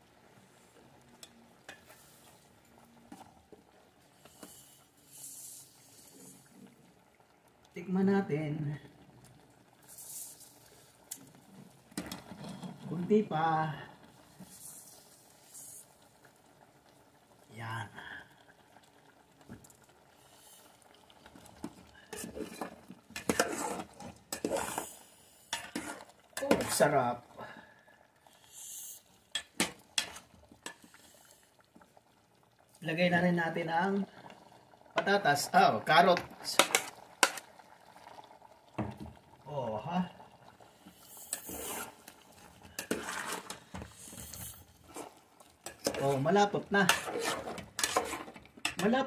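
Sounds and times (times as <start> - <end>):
metal spoon scraping pot: 22.1 - 24.9, 25.5 - 26.8, 29.4 - 30.8, 41.3 - 42.0, 42.7 - 48.9.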